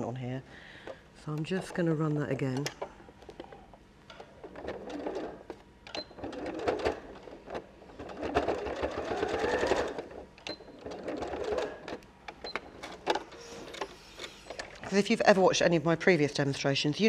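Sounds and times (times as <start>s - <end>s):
sewing machine stitching: 4.4s - 12.0s.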